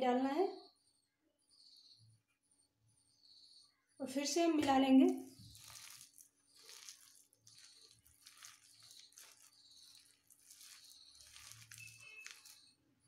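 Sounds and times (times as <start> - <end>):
onions crunching and squishing: 5.2 - 12.8.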